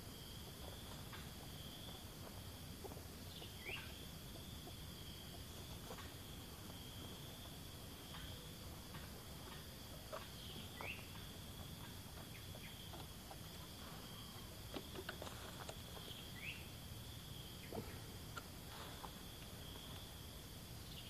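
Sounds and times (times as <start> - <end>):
insects droning: 0.0 - 21.0
bird chirps: 2.8 - 6.2, 9.4 - 13.0, 15.9 - 16.8.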